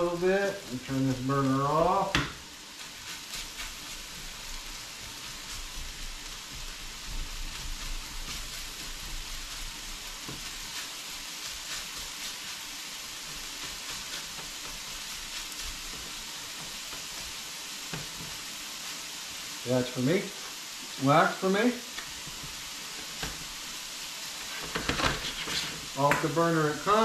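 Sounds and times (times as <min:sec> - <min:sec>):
frying hiss: 0:00.0 - 0:27.0
spatula scraping and tapping: 0:24.4 - 0:26.3.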